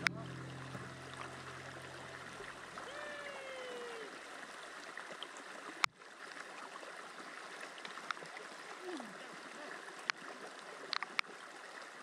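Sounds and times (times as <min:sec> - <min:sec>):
brief falling tone: 0:00.0 - 0:03.8
river water rushing: 0:00.0 - 0:12.0.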